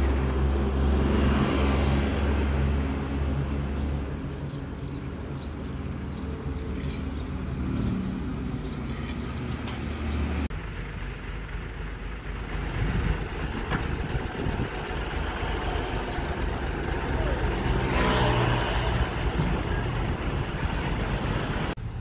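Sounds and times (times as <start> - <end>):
crane engine running: 9.0 - 22.0.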